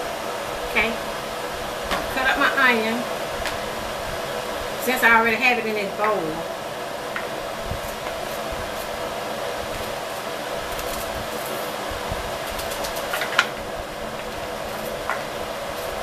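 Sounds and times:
appliance whirring: 0.0 - 16.0
knife cutting onion clicks: 12.5 - 13.5.

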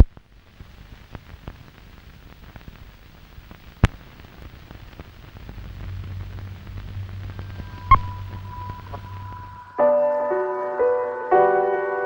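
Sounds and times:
film soundtrack crackle and pops: 0.0 - 10.1
low hum: 3.2 - 9.8.

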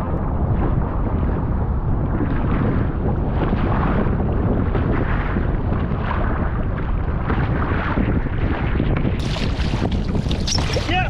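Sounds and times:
wind buffeting microphone: 0.0 - 11.0
waves splashing against hull: 2.1 - 11.0.

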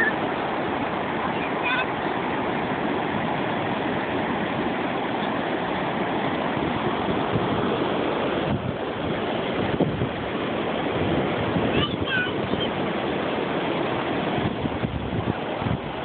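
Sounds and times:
ocean surf on sandy beach: 0.0 - 16.0
wind buffeting microphone: 0.0 - 16.0.

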